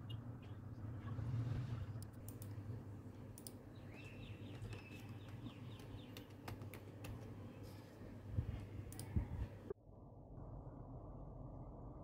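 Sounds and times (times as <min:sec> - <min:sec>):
steady low hum: 0:00.0 - 0:12.0
computer mouse clicks: 0:02.0 - 0:02.6, 0:03.3 - 0:03.6, 0:08.9 - 0:09.2.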